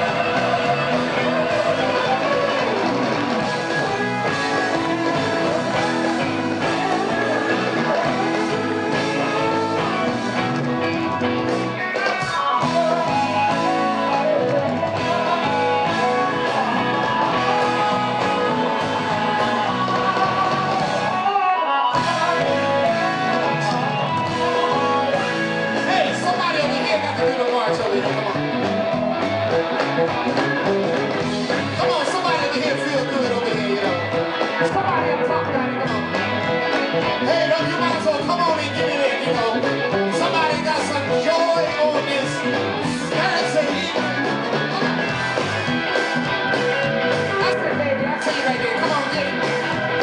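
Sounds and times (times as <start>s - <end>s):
blues-rock band playing: 0.0s - 50.0s
electric guitar lead: 0.0s - 50.0s
pedal steel guitar sliding notes: 12.6s - 25.9s.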